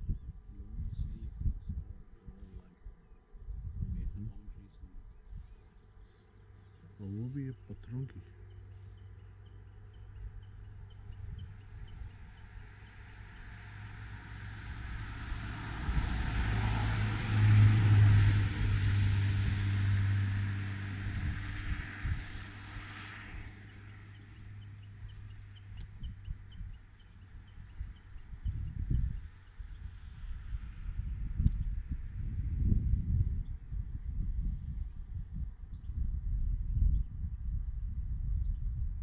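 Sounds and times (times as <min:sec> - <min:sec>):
cars driving past: 0:08.0 - 0:28.4.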